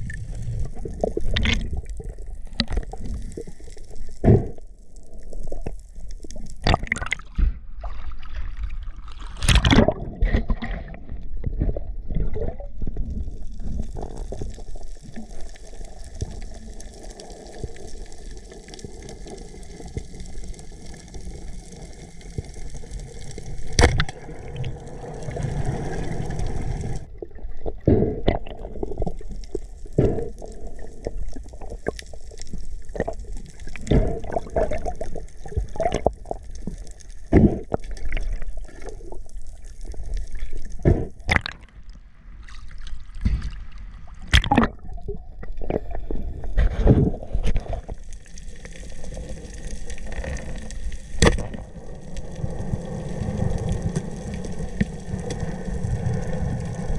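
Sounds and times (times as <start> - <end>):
water sloshing and gurgling: 0.0 - 56.9
sharp knocks and splashes: 6.6 - 8.6, 9.2 - 10.9, 23.8 - 24.2, 40.8 - 41.7, 42.7 - 44.9.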